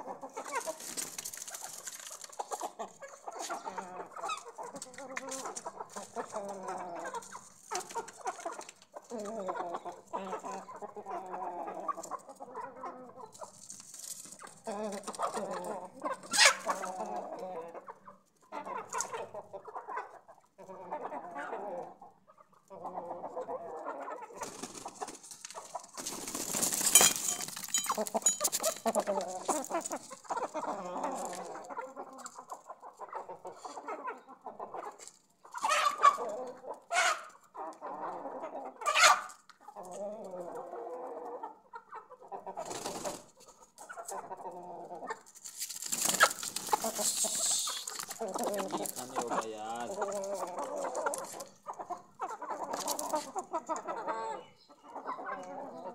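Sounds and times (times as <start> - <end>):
chickens clucking: 0.0 - 55.9.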